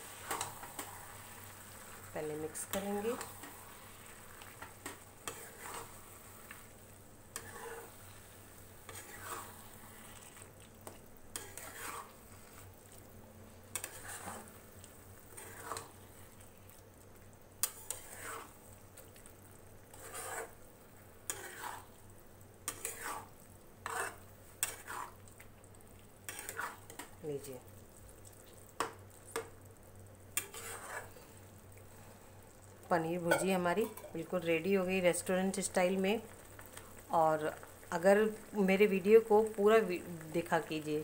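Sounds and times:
food sizzling: 0.0 - 41.0
metal spatula scraping a pan: 0.2 - 1.2, 2.6 - 6.6, 7.3 - 8.2, 8.9 - 10.5, 11.4 - 12.7, 13.7 - 14.6, 15.3 - 16.0, 17.6 - 18.6, 19.9 - 20.6, 21.3 - 21.9, 22.7 - 25.2, 26.3 - 27.1, 30.4 - 31.2.

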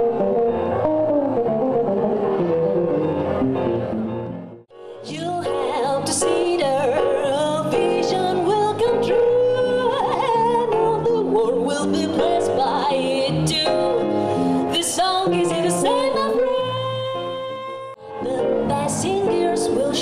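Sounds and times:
grand piano: 0.0 - 20.0
woman singing jazz: 5.0 - 20.0.

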